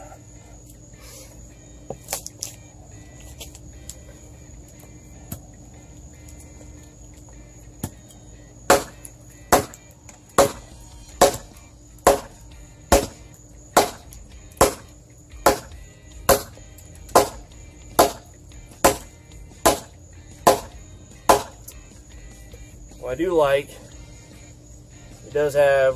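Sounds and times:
hatchet chopping log: 8.7s - 13.2s, 13.8s - 15.7s, 16.3s - 17.4s, 18.0s - 18.2s, 18.8s - 20.7s, 21.3s - 21.6s.

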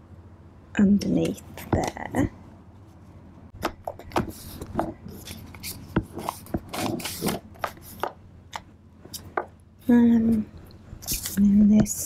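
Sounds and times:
paper rustling and rubbing: 4.0s - 8.2s.

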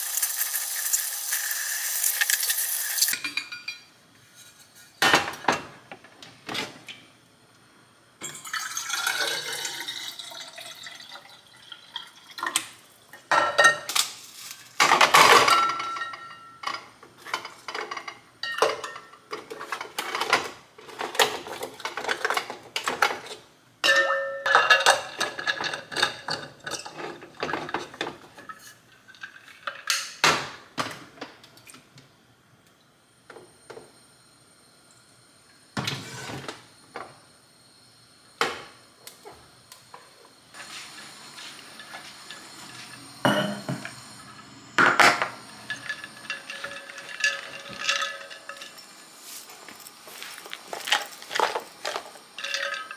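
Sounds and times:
dishes clinking and knocking: 3.1s - 3.9s, 5.0s - 6.7s, 13.3s - 14.0s, 14.8s - 31.0s, 41.8s - 44.0s, 44.8s - 49.0s, 50.7s - 52.9s.

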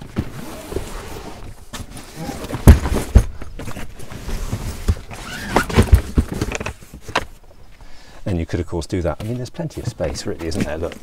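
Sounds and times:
luggage rustling and knocking: 1.8s - 7.2s
heavy thuds: 2.3s - 7.2s.

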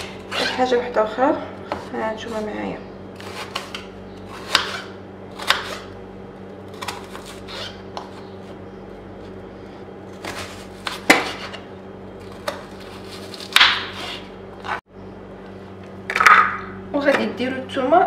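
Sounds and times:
knife cutting onion on board: 3.2s - 5.9s, 10.2s - 11.6s, 12.4s - 14.8s.

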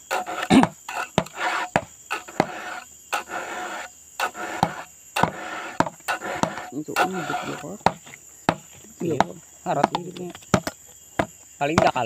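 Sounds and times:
file rasping on chainsaw chain: 0.0s - 8.1s.

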